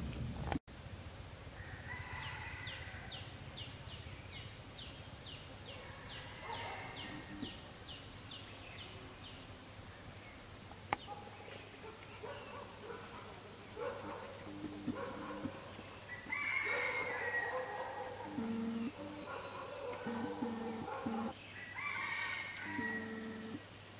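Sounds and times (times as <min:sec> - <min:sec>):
distant rooster crowing: 0:01.6 - 0:03.3, 0:05.8 - 0:07.5, 0:14.5 - 0:23.6
chickens clucking: 0:14.5 - 0:15.6, 0:18.2 - 0:21.3
steady high-pitched drone: 0:14.5 - 0:15.6, 0:18.3 - 0:19.1.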